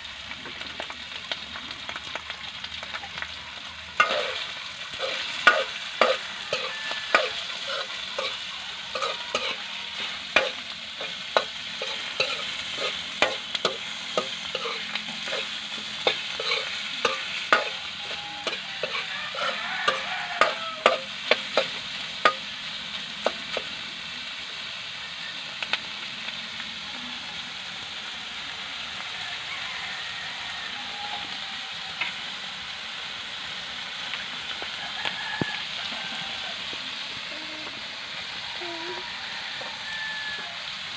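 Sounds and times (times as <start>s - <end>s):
meat sizzling in a wok: 0.0s - 40.9s
utensil scraping and clacking pan: 4.0s - 22.5s.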